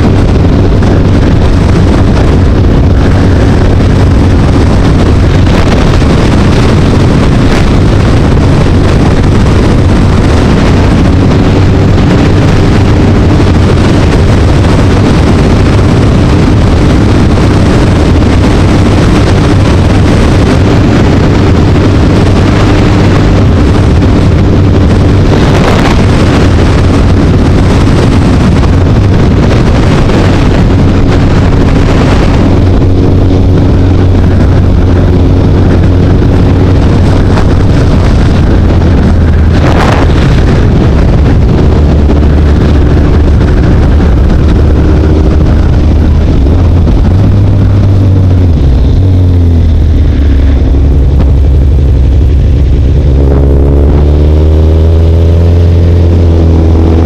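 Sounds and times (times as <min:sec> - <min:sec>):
steady low hum: 0:00.0 - 0:57.0
wind rush over microphone: 0:00.0 - 0:57.0.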